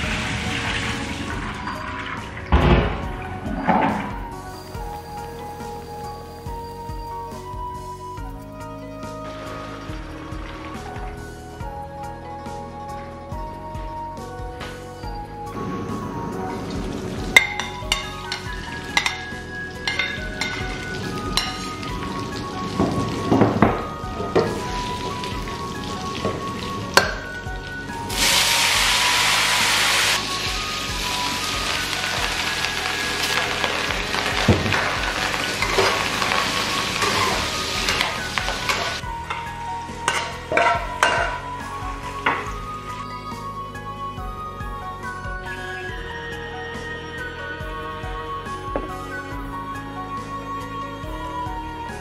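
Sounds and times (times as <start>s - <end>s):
food sizzling in a wok: 4.2s - 7.4s, 16.7s - 42.1s
spatula clanking against wok: 17.4s - 21.9s, 34.2s - 41.5s.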